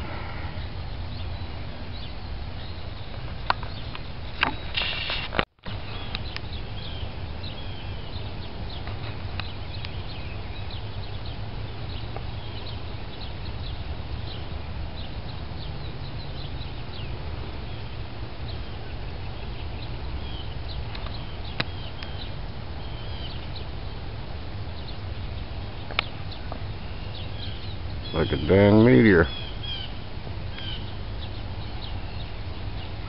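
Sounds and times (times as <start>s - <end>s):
birds chirping: 0.0s - 33.0s
steady low rumble: 5.7s - 33.0s.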